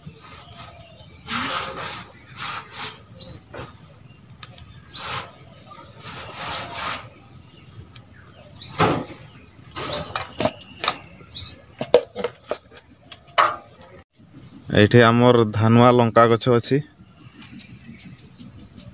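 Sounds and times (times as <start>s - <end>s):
harsh bird calls: 0.0s - 18.9s.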